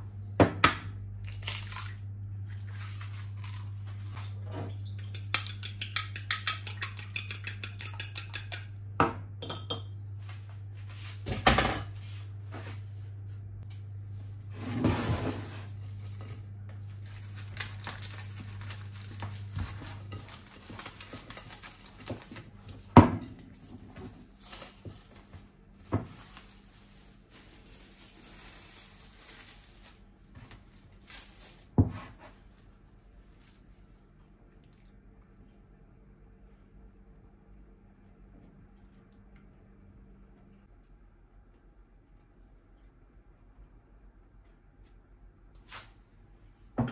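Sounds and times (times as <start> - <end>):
low steady hum: 0.0 - 46.9
metal utensils clinking on dishes: 5.0 - 8.7.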